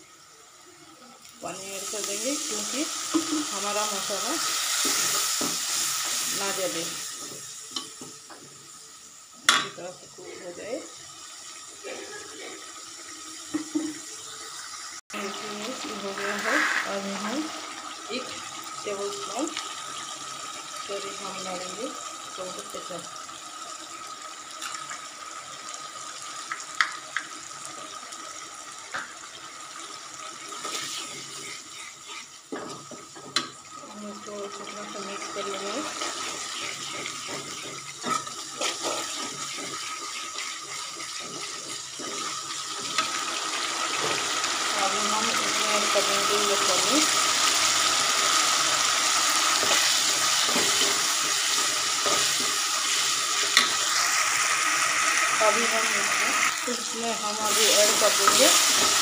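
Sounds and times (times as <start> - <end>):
food sizzling in oil: 0.0 - 59.0
spoon stirring: 35.8 - 43.1.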